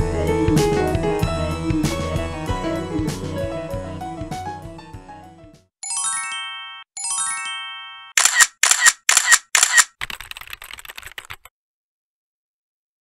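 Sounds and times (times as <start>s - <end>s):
background music: 0.0s - 7.6s
camera shutter clicks: 8.2s - 10.0s.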